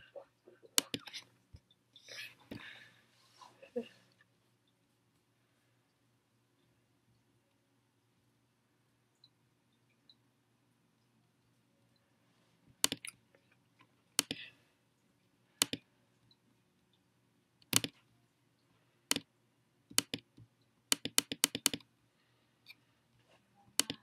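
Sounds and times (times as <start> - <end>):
faint low hum: 0.0 - 24.0
computer mouse clicks: 12.8 - 13.2, 14.2 - 14.4, 15.6 - 15.8, 17.6 - 18.0, 19.1 - 19.3, 19.9 - 21.9, 23.8 - 24.0.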